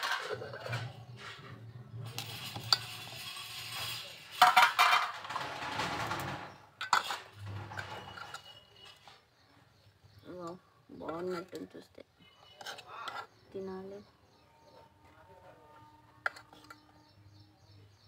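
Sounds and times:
pot lid clinking and clattering: 0:00.0 - 0:01.0, 0:02.1 - 0:08.6
steel ladle scraping in pot: 0:00.0 - 0:04.7, 0:06.8 - 0:09.0, 0:11.0 - 0:13.5, 0:16.2 - 0:16.9.

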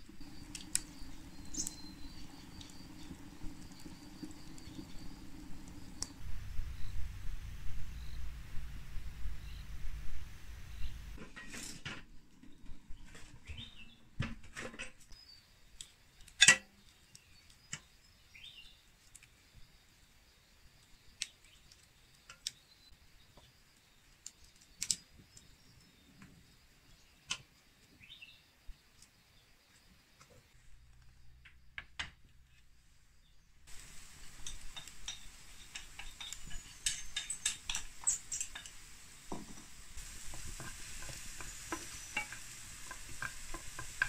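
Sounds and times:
bird chirps: 0:00.2 - 0:08.5.

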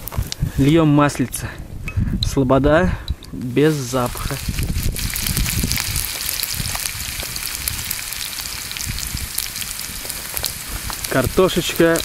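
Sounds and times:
potatoes sizzling in hot oil: 0:03.5 - 0:12.0.

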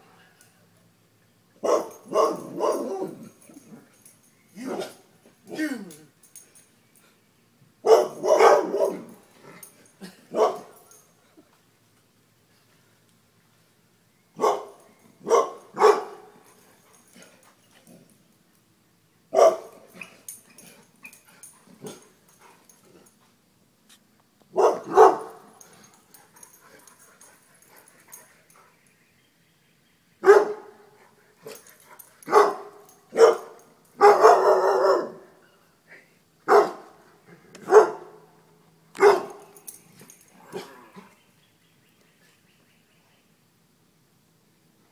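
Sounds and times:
dog barking: 0:01.6 - 0:03.3, 0:07.8 - 0:09.2, 0:10.3 - 0:10.8, 0:14.4 - 0:16.3, 0:19.3 - 0:19.8, 0:24.5 - 0:25.4, 0:30.2 - 0:30.8, 0:32.3 - 0:35.3, 0:36.5 - 0:36.9, 0:37.6 - 0:38.2, 0:39.0 - 0:39.5.

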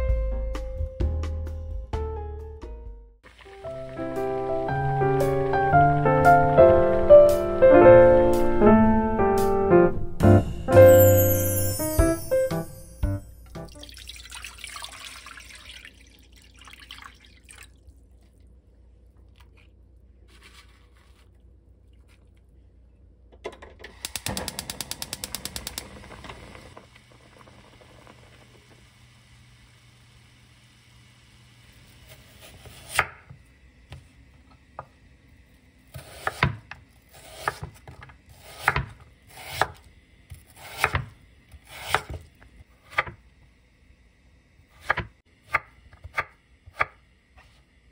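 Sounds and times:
water boiling hiss: 0:03.2 - 0:06.8, 0:24.0 - 0:36.4
water pouring into metal pot: 0:13.7 - 0:18.5
knife chopping on wooden board: 0:36.0 - 0:41.1, 0:41.7 - 0:42.2, 0:42.8 - 0:43.2, 0:44.8 - 0:47.0.

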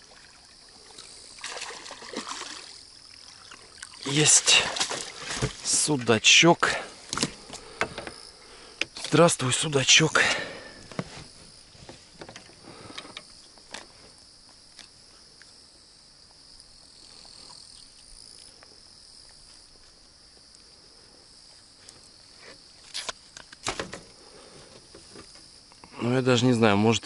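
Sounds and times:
high-pitched insect chorus: 0:00.0 - 0:27.0.

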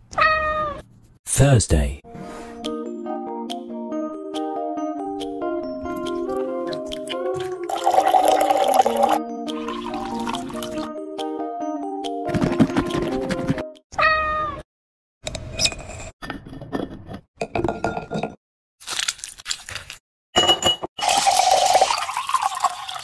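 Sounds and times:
cat meowing: 0:00.1 - 0:00.8, 0:14.0 - 0:14.6
music: 0:02.1 - 0:13.8
soda pouring and fizzing: 0:07.7 - 0:10.9, 0:21.0 - 0:23.0.

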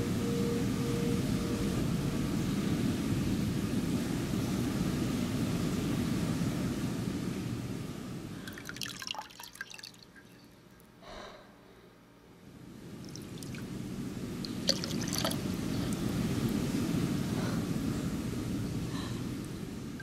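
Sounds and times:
water dripping: 0:08.4 - 0:10.6, 0:13.0 - 0:13.7, 0:14.4 - 0:16.1.

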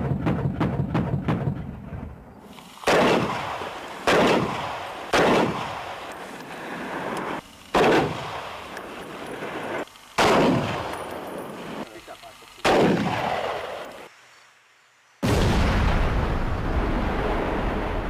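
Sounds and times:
automatic gunfire burst: 0:02.8 - 0:06.0, 0:07.7 - 0:08.7, 0:10.2 - 0:10.9, 0:12.6 - 0:13.8
heavy single gunshots echoing: 0:02.9 - 0:06.0.

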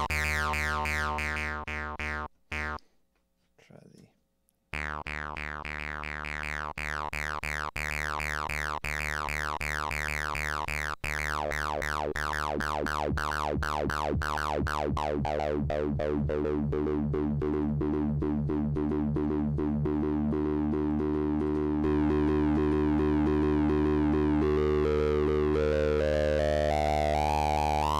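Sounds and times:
synth repeated notes: 0:04.8 - 0:27.9.

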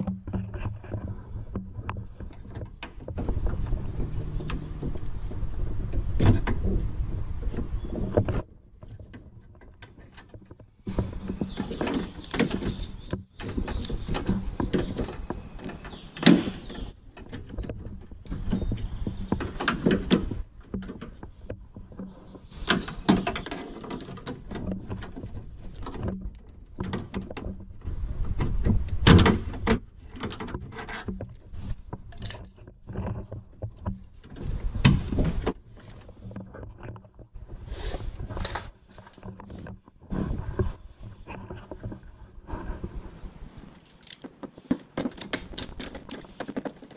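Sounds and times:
screwdriver clicking and scraping metal: 0:43.8 - 0:46.9.

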